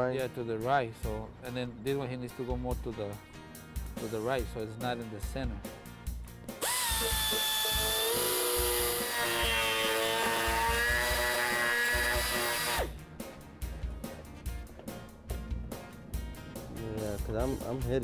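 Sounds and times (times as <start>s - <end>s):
power tool whining cutting plastic: 6.6s - 13.0s.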